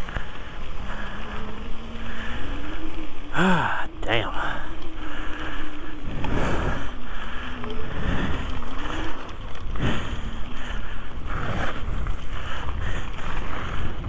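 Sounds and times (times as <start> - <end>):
faint wavering hum: 0.0 - 14.0
tyres rolling on gravel: 0.0 - 14.0
wind buffeting microphone: 0.0 - 14.0.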